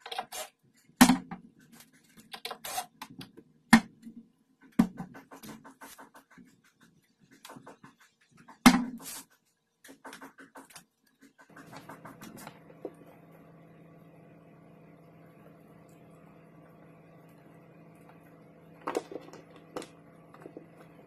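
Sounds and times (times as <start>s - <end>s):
steady low hum: 11.5s - 21.0s.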